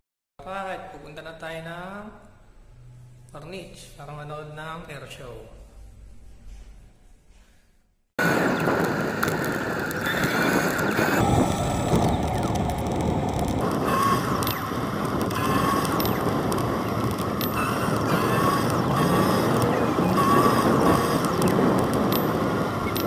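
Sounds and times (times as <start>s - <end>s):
bicycle tyre noise: 8.2s - 23.0s
wind on microphone: 8.2s - 23.0s
bike rattling and clicking: 8.5s - 23.0s.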